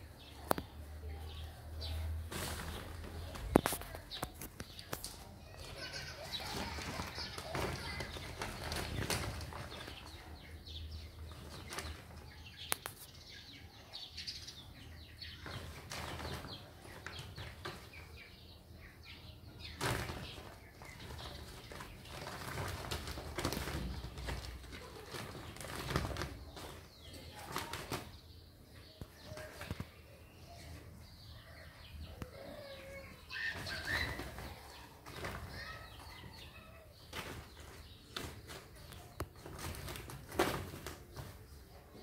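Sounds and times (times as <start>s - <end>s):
plastic sack rustling: 1.8s - 4.4s, 19.8s - 28.1s.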